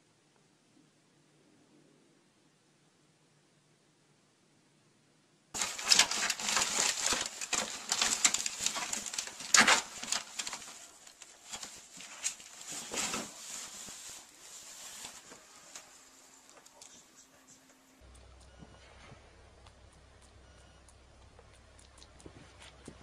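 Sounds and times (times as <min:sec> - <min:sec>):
cloth rustling: 0:05.6 - 0:16.6.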